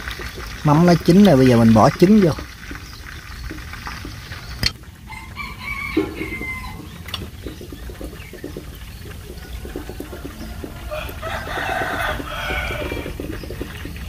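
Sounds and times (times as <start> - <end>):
rooster crowing: 5.0 - 7.0, 9.6 - 13.6.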